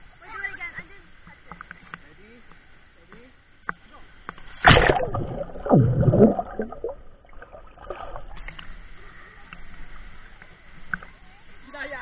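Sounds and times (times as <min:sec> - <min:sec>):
pool water splashing: 0:03.8 - 0:12.0
water sloshing: 0:04.3 - 0:08.9.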